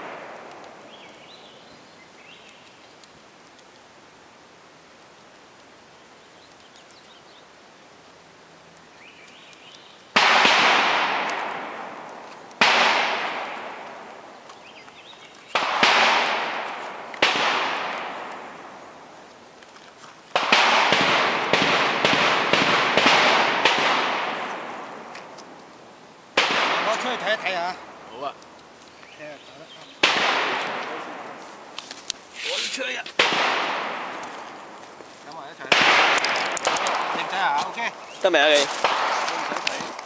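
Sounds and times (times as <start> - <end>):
gunshots with long echo: 0.0 - 1.0, 10.1 - 14.3, 15.5 - 19.1, 20.3 - 25.4, 26.3 - 28.1, 30.0 - 31.7, 33.2 - 34.8, 35.6 - 39.8.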